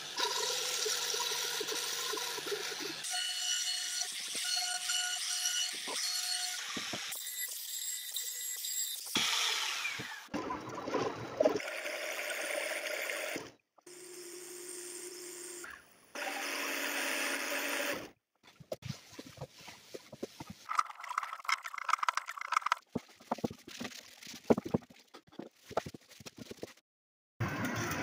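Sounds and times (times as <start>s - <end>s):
drill-powered lathe whirring: 16.2s - 18.1s
scraping rub: 18.7s - 26.8s
wooden pieces knocking: 20.6s - 23.6s.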